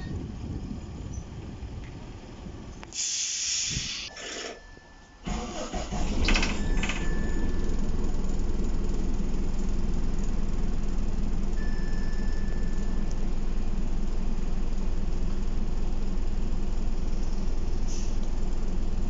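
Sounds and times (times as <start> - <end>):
bus diesel engine idling: 0.0 - 4.2, 5.2 - 19.0
air hiss: 2.9 - 4.4, 17.8 - 18.2
thin electronic tone: 11.6 - 13.2.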